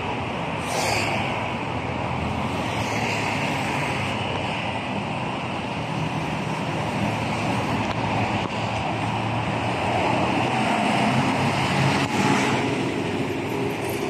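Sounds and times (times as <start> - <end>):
road traffic passing: 0.0 - 14.0.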